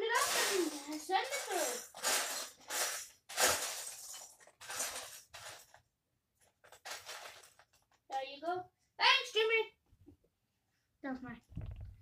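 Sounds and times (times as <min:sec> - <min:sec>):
plastic bricks rattling: 0:00.0 - 0:05.8, 0:06.5 - 0:08.0.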